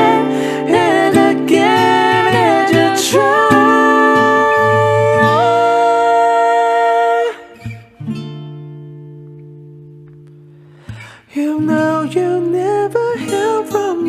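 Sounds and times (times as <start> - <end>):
person singing: 0.0 - 7.8, 11.3 - 14.0
acoustic guitar: 0.0 - 14.0.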